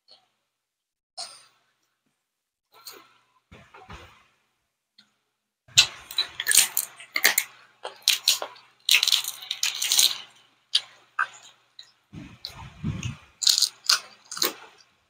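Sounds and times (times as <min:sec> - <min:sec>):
crunching of crispy food being chewed: 0:05.8 - 0:14.9.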